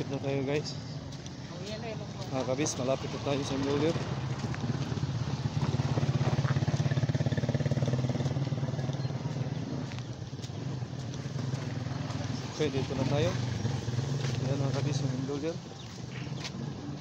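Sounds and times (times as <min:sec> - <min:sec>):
road and wind noise: 0:00.0 - 0:17.0
small motorcycle engine running: 0:04.7 - 0:15.0.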